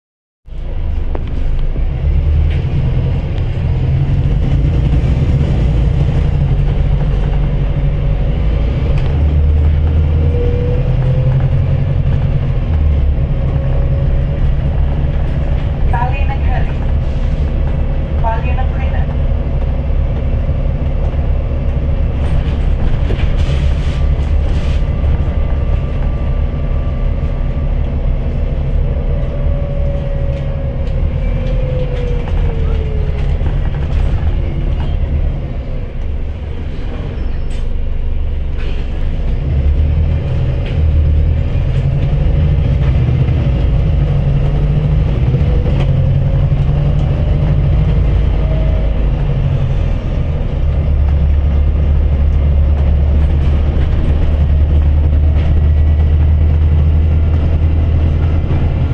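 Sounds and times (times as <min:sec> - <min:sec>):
bus engine and road rumble: 0:00.4 - 0:58.9
rattles of bus fittings: 0:19.4 - 0:26.2.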